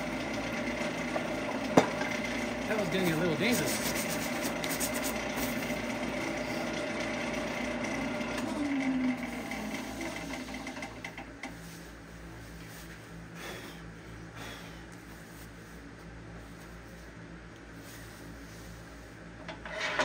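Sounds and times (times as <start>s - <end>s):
lathe cutting wood: 0.0s - 11.0s
wood lathe motor hum: 0.0s - 11.5s.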